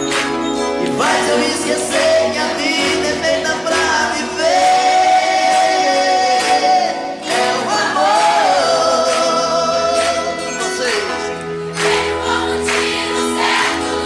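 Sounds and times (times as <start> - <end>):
instrumental accompaniment: 0.0 - 14.0
man singing: 0.8 - 11.4.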